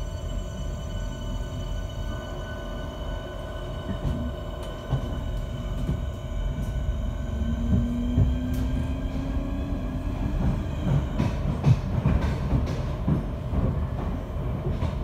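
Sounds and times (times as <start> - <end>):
low train rumble: 0.0 - 15.0
train electric hum: 0.0 - 15.0
rising motor tone: 7.2 - 10.6.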